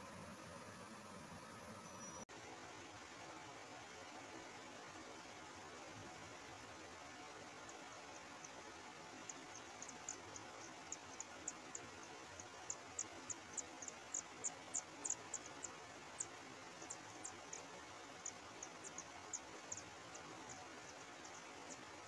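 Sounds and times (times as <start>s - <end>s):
faint steady hiss: 0.0s - 22.0s
nestlings peeping: 7.6s - 22.0s.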